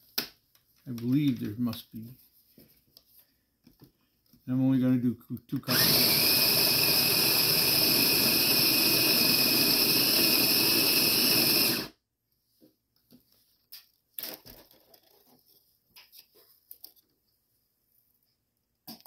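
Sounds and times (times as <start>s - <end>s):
coffee grinder motor whirring: 5.6s - 12.0s.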